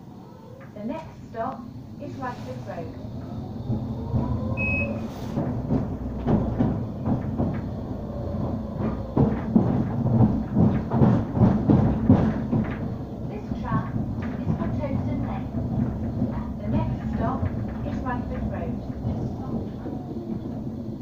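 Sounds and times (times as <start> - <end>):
tram rumble: 0.0 - 21.0
wheels rattling over rails: 0.0 - 21.0.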